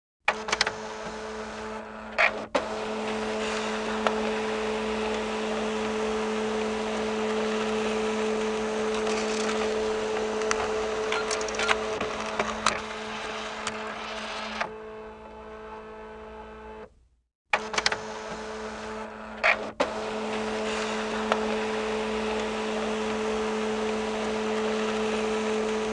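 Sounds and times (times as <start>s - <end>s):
fax machine motor whirring: 0.3s - 16.9s, 17.6s - 25.9s
fax machine clicks: 2.2s - 14.8s.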